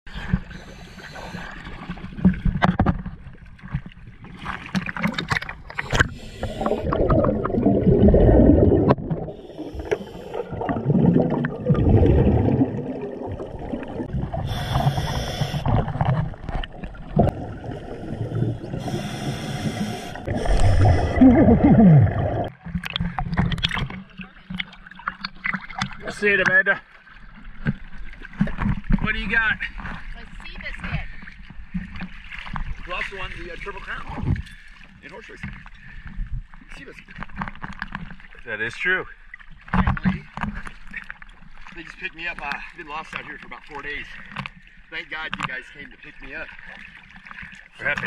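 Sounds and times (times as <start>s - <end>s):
muffled water sloshing and bubbling: 0.1s - 48.0s
regulator breathing hiss: 0.4s - 1.6s, 5.9s - 6.9s, 9.4s - 10.5s, 14.4s - 15.7s, 18.8s - 21.2s.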